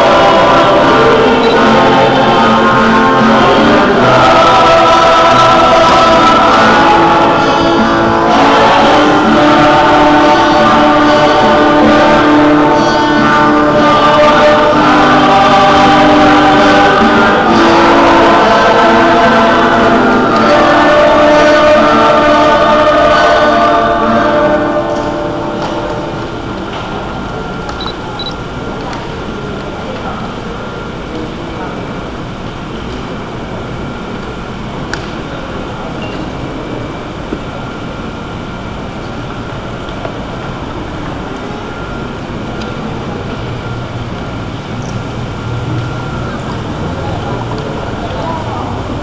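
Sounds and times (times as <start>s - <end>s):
choir singing: 0.0s - 27.6s
room noise: 0.0s - 49.0s.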